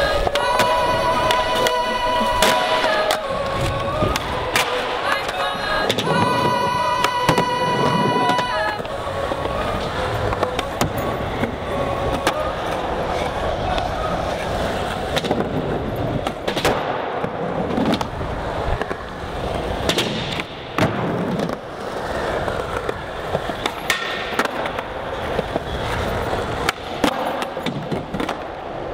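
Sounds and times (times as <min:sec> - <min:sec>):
skateboard wheels rolling on concrete: 0:00.0 - 0:28.9
skateboard clacks popping and landing: 0:16.2 - 0:18.2, 0:19.8 - 0:21.8, 0:22.8 - 0:25.7, 0:26.6 - 0:28.6.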